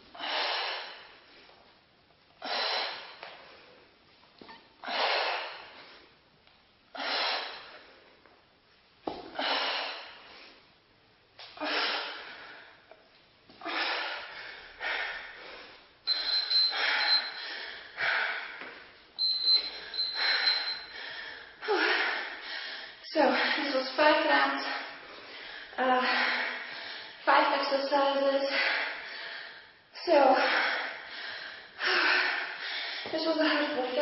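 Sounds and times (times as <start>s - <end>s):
woman breathing hard: 0.0s - 1.7s, 2.3s - 4.0s, 4.8s - 6.1s, 6.9s - 8.2s, 9.3s - 10.7s, 11.5s - 23.8s, 24.5s - 27.3s, 28.4s - 34.0s
high-pitched beeping tone: 16.1s - 17.4s, 19.2s - 20.9s.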